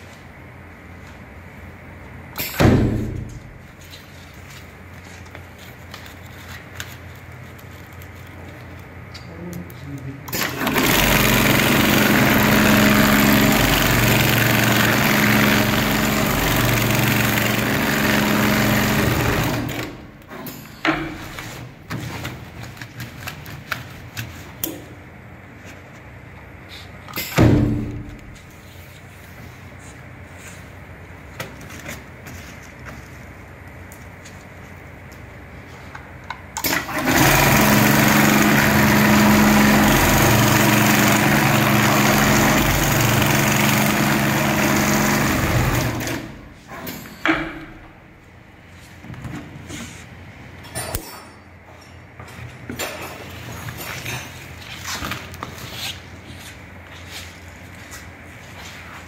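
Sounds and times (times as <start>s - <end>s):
loud thump with air rush: 2.4s - 3.4s, 27.3s - 28.2s
loud thump: 2.6s - 3.4s.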